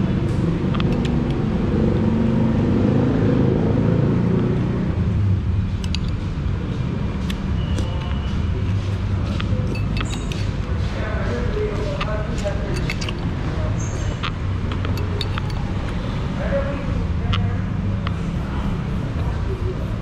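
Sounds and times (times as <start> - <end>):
motor vehicles rumbling: 0.0 - 20.0
light clicks and clinks: 9.4 - 10.6, 11.9 - 16.0.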